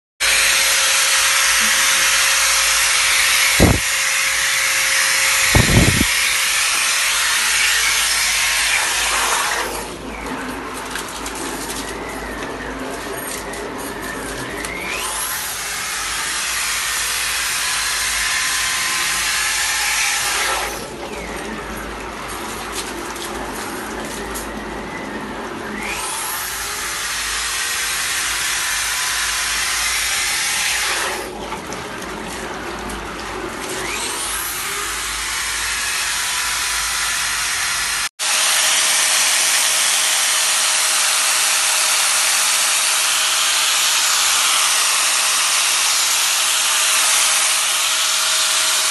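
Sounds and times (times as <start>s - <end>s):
electric drill motor: 0.2s - 21.9s, 22.7s - 31.4s, 33.6s - 48.9s
steady machine noise: 0.2s - 31.4s.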